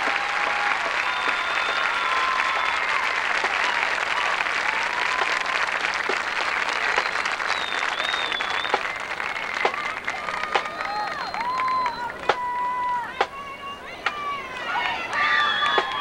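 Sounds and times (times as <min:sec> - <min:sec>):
crowd applauding: 0:00.0 - 0:13.4, 0:14.0 - 0:16.0
cheers and whistles: 0:00.0 - 0:16.0.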